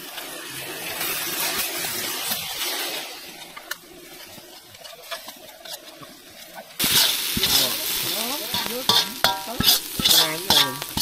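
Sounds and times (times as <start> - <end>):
noodles sizzling in a wok: 0.0 - 11.0
metal ladle clicking against wok: 8.5 - 11.0.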